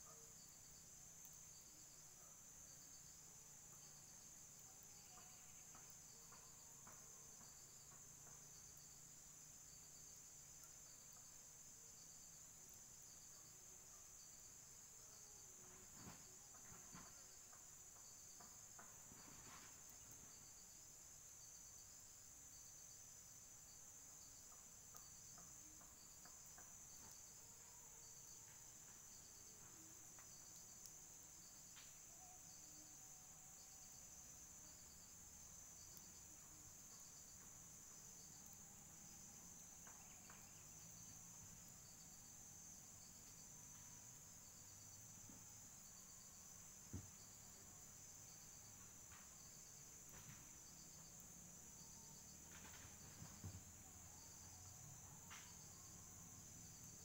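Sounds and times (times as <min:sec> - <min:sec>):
high-pitched insect chorus: 0:00.0 - 0:57.0
faint ticks: 0:24.2 - 0:32.4, 0:54.4 - 0:55.9.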